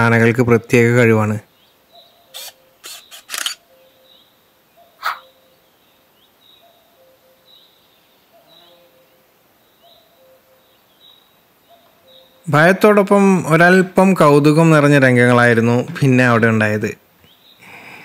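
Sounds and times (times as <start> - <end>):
quiet outdoor ambience: 0.0 - 18.0
faint high bird chirps: 1.4 - 12.7
camera shutter clicks: 2.4 - 3.6.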